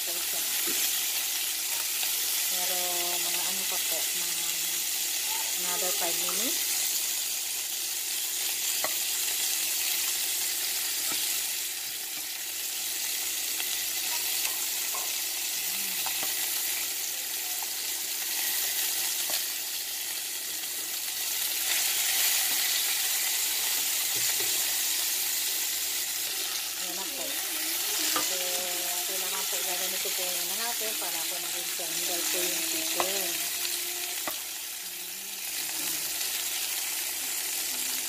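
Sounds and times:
chicken sizzling in oil: 0.0 - 38.0.

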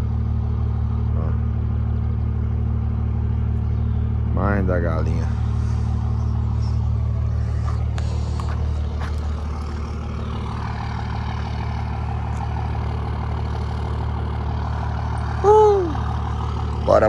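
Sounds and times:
truck diesel engine rumbling: 0.0 - 17.0.

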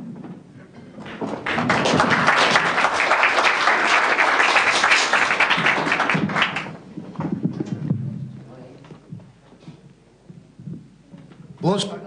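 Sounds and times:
audience applauding: 1.0 - 6.8.

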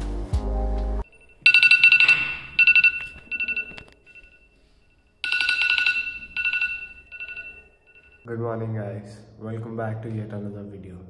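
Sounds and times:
music: 0.0 - 1.1.

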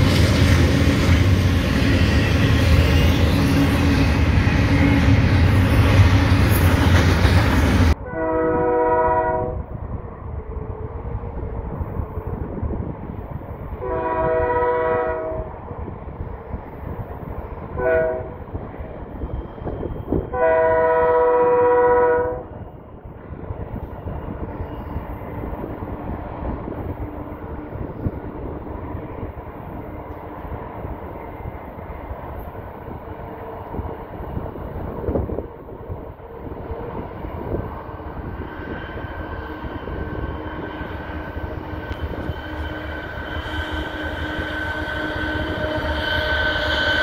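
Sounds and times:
freight train rumbling: 0.0 - 47.0
locomotive air horn: 8.0 - 9.7, 13.8 - 15.6, 17.7 - 18.4, 20.3 - 22.5, 41.4 - 47.0.

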